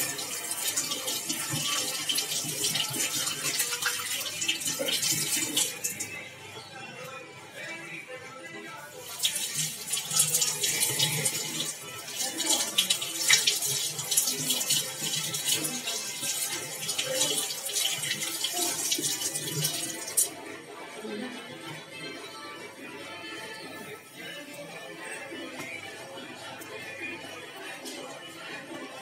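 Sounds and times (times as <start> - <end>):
tap water splashing into sink: 9.1 - 20.3.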